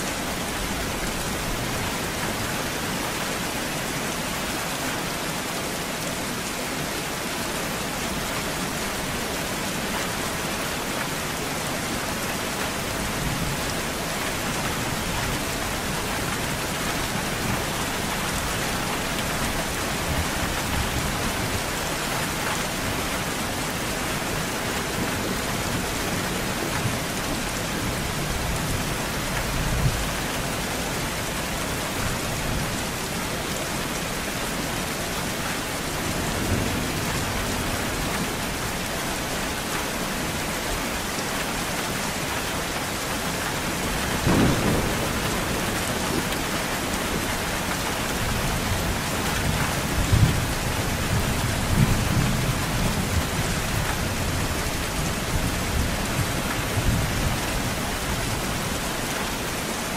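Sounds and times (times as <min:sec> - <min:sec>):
steady rain falling: 0:00.0 - 0:59.9
thunder rumbling: 0:44.2 - 0:47.2.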